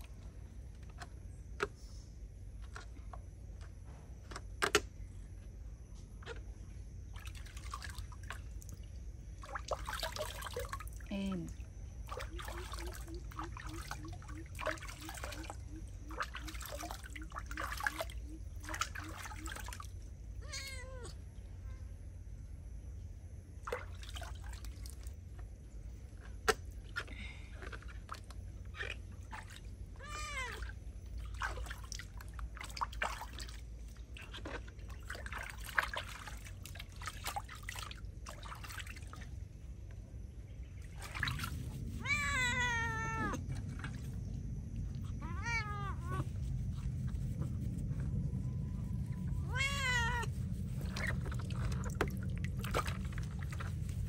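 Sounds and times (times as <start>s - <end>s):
water splashing in basin: 7.1s - 20.1s, 23.6s - 25.5s, 26.2s - 39.6s, 40.8s - 54.0s
cat meowing: 20.4s - 21.2s, 30.0s - 30.6s, 42.0s - 43.4s, 45.2s - 46.3s, 49.4s - 50.3s.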